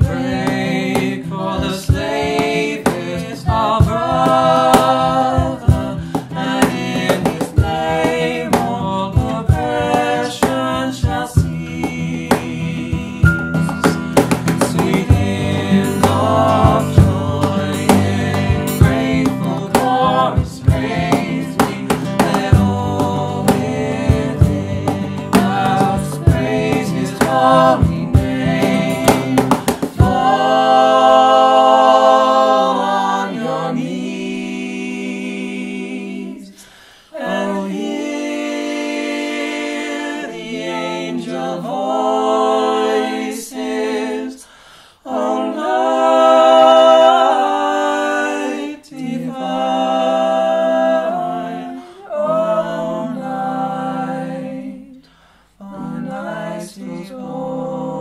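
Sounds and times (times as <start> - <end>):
group singing close harmony: 0.0 - 58.0
sharp percussive hits: 11.9 - 20.0, 20.6 - 30.3.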